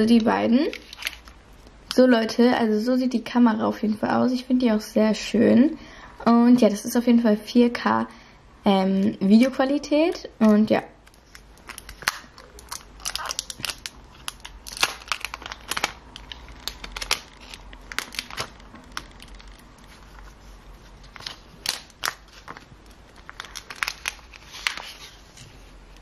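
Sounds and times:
plastic film crinkling: 0.0 - 2.0, 11.0 - 26.0.

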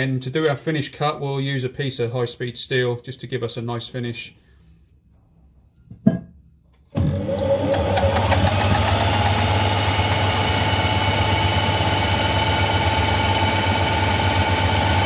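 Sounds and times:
metal lathe humming and whining: 7.0 - 15.0.

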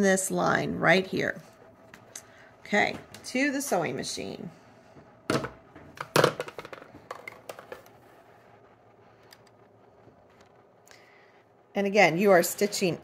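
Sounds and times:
objects being handled: 5.0 - 8.2.

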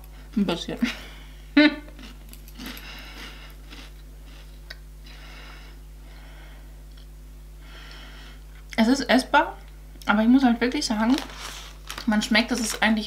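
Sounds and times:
steady low hum: 0.0 - 13.0
person chewing crunchy snack: 1.9 - 4.8.

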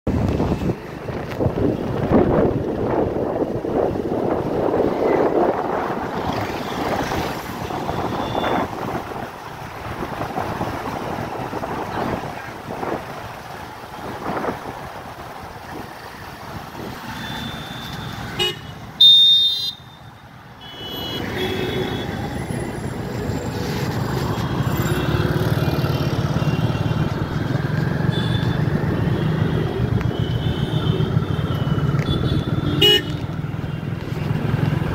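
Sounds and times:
wind noise: 0.1 - 17.0
vehicle horn honking: 7.8 - 8.6, 17.2 - 20.0, 20.6 - 22.1, 32.0 - 33.2.

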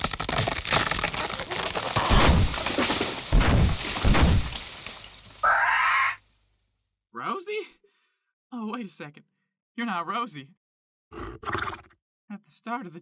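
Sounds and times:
brush crashing: 0.0 - 5.4
branches cracking: 0.0 - 5.8.

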